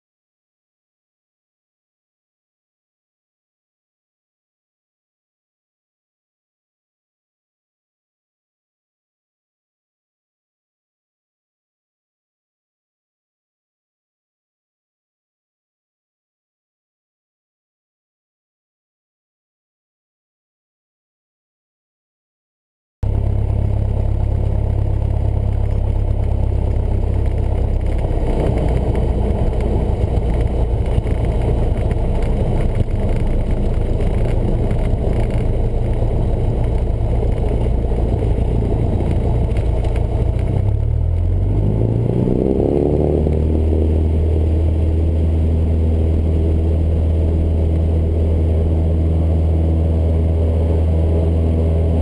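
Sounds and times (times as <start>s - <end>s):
small plane engine and propeller: 23.0s - 52.0s.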